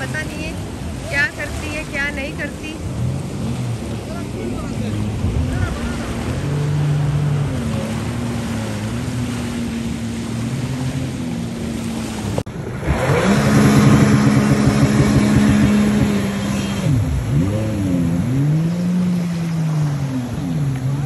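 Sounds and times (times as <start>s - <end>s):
jet ski engine running: 0.0s - 21.0s
jet ski revving up: 0.0s - 21.0s
wind: 0.0s - 21.0s.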